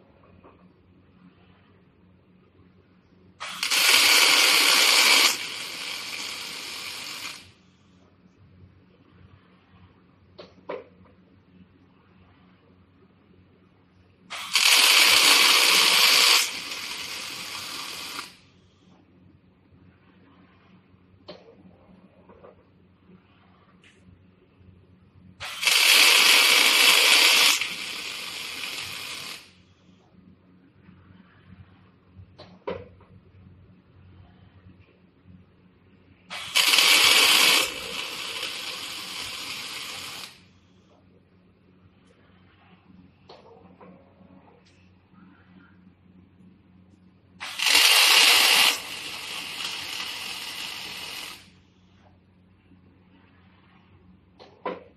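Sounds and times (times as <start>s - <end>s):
welding arc hissing: 3.4s - 7.6s, 14.3s - 18.4s, 25.4s - 29.6s, 36.3s - 40.5s, 47.4s - 51.6s.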